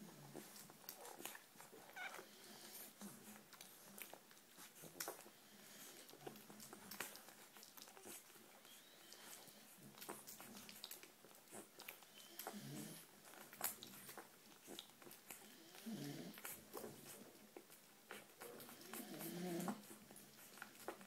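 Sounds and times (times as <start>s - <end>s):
puppy suckling: 0.1s - 21.0s
puppy grunting: 12.4s - 21.0s.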